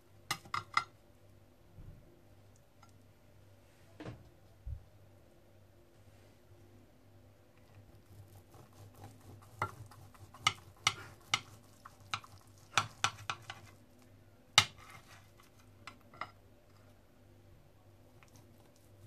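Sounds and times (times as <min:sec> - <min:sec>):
knife sawing through crisp crust: 0:07.9 - 0:13.8.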